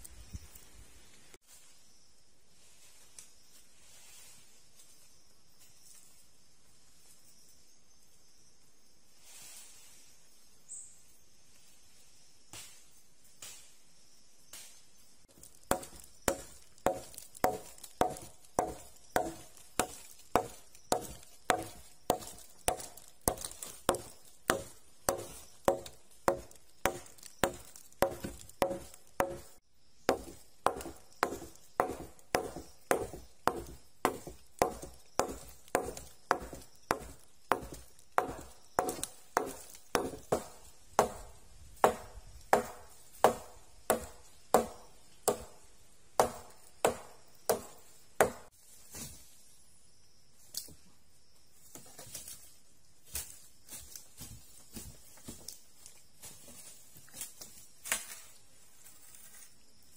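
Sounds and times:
blade chopping wood: 15.3s - 48.5s.

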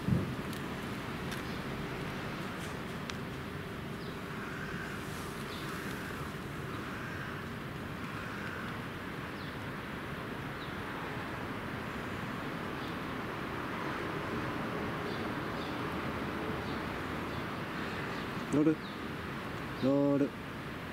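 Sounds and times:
outdoor background rumble: 0.0s - 20.9s.

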